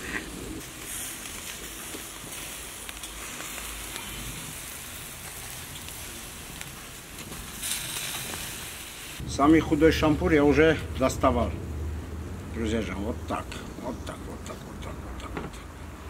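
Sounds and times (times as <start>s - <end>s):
fat crackling: 0.0s - 10.0s
meat sizzling over charcoal: 0.0s - 14.0s.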